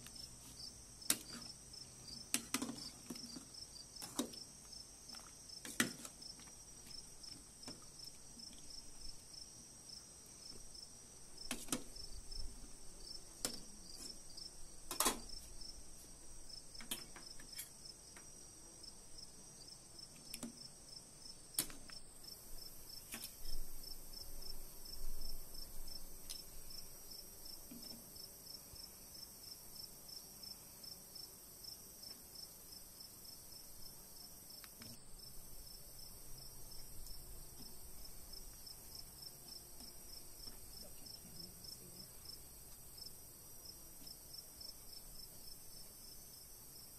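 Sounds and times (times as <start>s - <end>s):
crickets chirping: 0.2s - 5.6s, 6.2s - 27.6s.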